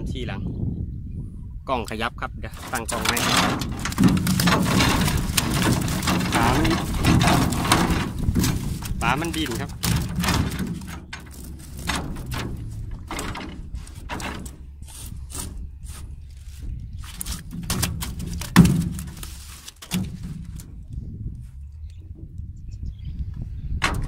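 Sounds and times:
fish slapping against boat hull: 0:02.6 - 0:14.6, 0:17.0 - 0:20.7.

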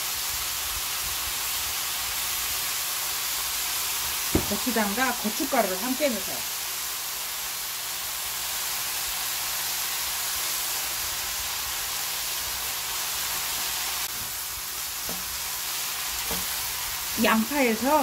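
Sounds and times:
meat sizzling in a frying pan: 0:00.0 - 0:18.0
spoon knocking against pan: 0:16.2 - 0:16.5.

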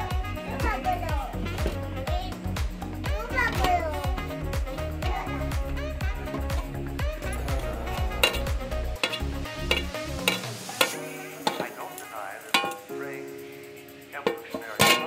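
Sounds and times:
metal pot lid clinking and scraping: 0:06.2 - 0:06.7, 0:07.3 - 0:12.9, 0:14.2 - 0:15.0.

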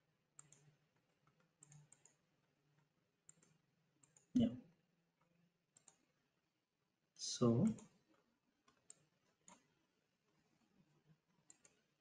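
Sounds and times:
computer mouse clicks: 0:00.4 - 0:02.2, 0:03.2 - 0:04.5, 0:05.7 - 0:06.1, 0:07.6 - 0:09.7, 0:11.3 - 0:11.9.

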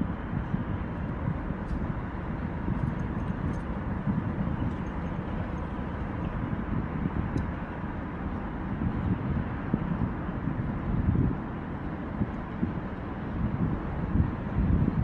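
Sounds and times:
traffic rumble on bridge: 0:00.0 - 0:15.0
wind buffeting microphone: 0:00.0 - 0:15.0.

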